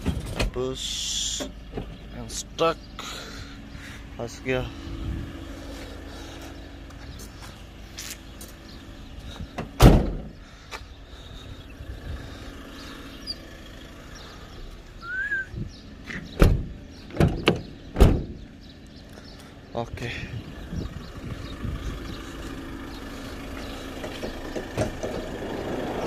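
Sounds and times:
door banging: 0:09.8 - 0:10.3, 0:16.4 - 0:18.4.

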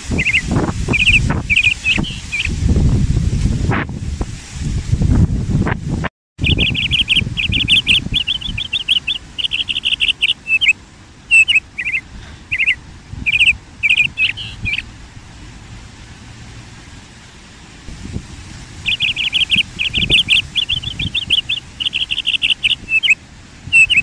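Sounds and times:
small bird singing: 0:00.0 - 0:02.6, 0:06.4 - 0:14.9, 0:18.8 - 0:24.0
wind rumble on microphone: 0:00.0 - 0:24.0.

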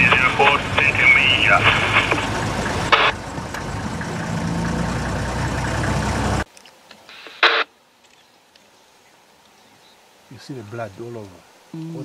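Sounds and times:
vehicle engine idling: 0:00.0 - 0:06.5
brief sharp call: 0:07.1 - 0:07.7.

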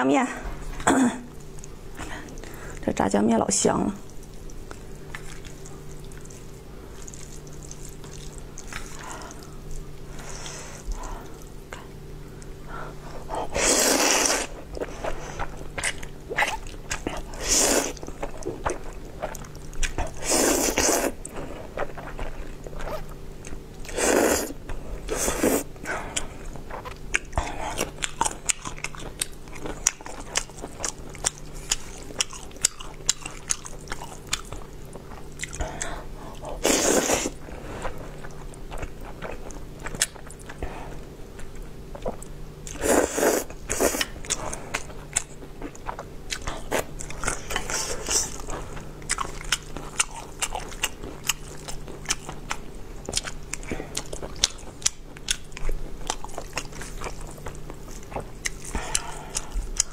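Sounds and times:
wet chewing: 0:04.0 - 0:12.6, 0:13.5 - 0:59.9
loud noodle slurps: 0:13.6 - 0:14.6, 0:17.4 - 0:18.0, 0:20.2 - 0:21.2, 0:36.6 - 0:37.4, 0:42.8 - 0:44.0.

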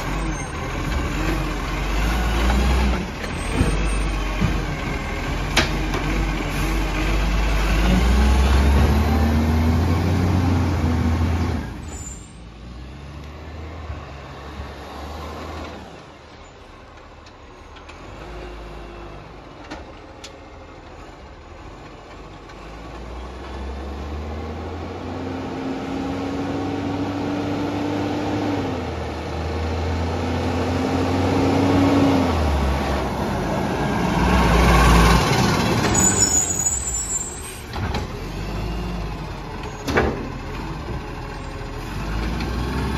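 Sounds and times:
garbage truck diesel engine revving: 0:00.0 - 0:11.9, 0:21.4 - 0:42.9.

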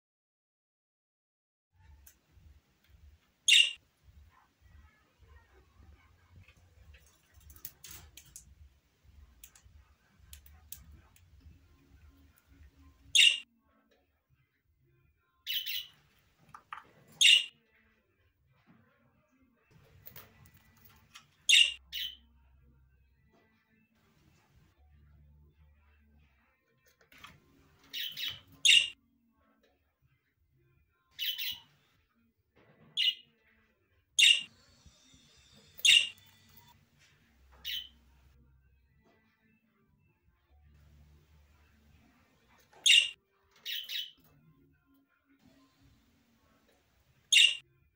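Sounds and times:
budgerigar chirping: 0:03.5 - 0:03.8, 0:13.1 - 0:13.4, 0:15.5 - 0:15.9, 0:17.2 - 0:17.5, 0:21.5 - 0:22.2, 0:27.9 - 0:28.9, 0:31.2 - 0:31.6, 0:34.2 - 0:34.5, 0:35.8 - 0:36.7, 0:37.6 - 0:38.0, 0:42.8 - 0:44.2, 0:47.3 - 0:47.6.

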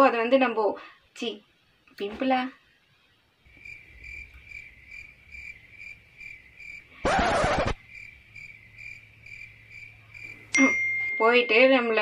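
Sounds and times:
cricket chirping: 0:03.5 - 0:11.9
low steady hum: 0:08.0 - 0:12.0.

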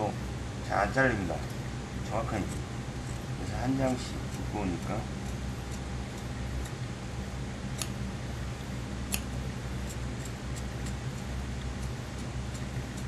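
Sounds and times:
shears snipping thick fabric: 0:02.1 - 0:06.8, 0:07.7 - 0:08.0, 0:09.0 - 0:13.0.

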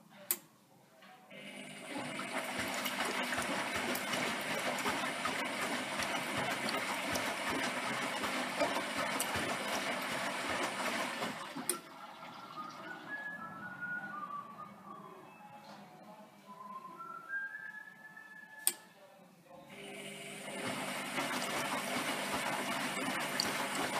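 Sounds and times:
water sloshing in washing machine drum: 0:01.6 - 0:12.9, 0:20.0 - 0:23.9.

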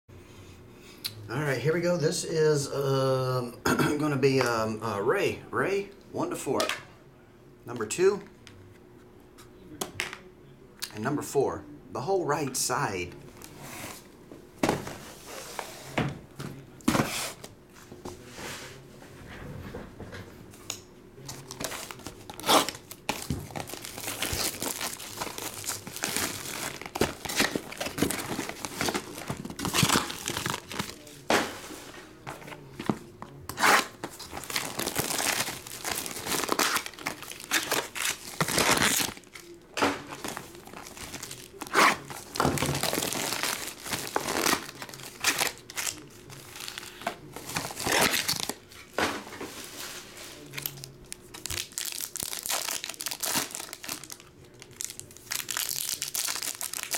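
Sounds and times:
plastic wrapping crinkling and ripping: 0:21.3 - 0:31.2, 0:33.5 - 0:48.7, 0:50.4 - 0:56.9.

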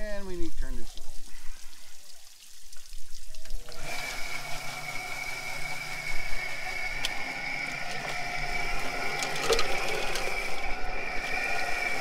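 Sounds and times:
chicken plucker motor whine: 0:03.5 - 0:12.0.

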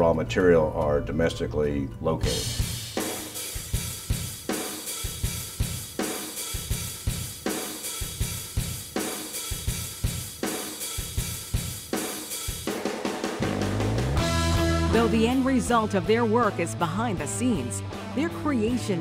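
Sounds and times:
drum kit beat: 0:02.2 - 0:19.0.

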